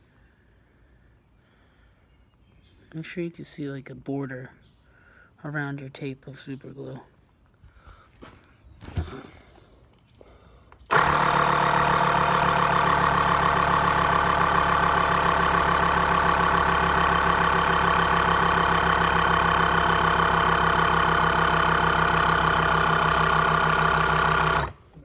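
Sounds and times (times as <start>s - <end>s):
electric air compressor rattling: 10.9s - 25.0s.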